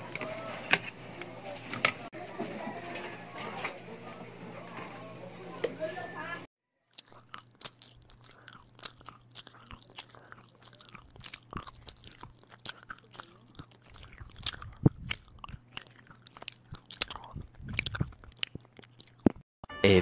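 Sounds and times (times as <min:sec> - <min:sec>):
person chewing crunchy food: 0:06.9 - 0:19.5
mouth clicks: 0:07.0 - 0:19.4.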